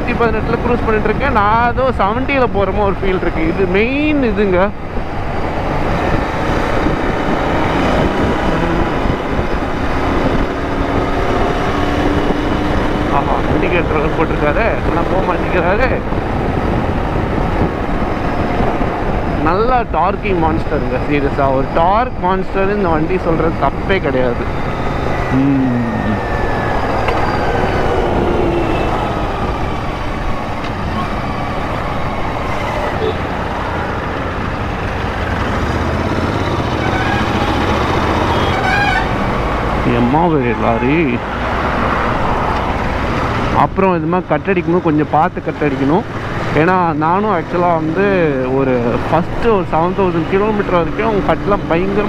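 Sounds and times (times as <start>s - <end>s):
wind rush over microphone: 0.0s - 36.8s.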